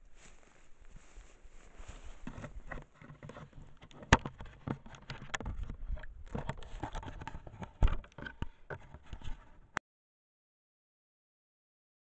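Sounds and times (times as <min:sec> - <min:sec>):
camera handling rustling: 0:02.2 - 0:09.7.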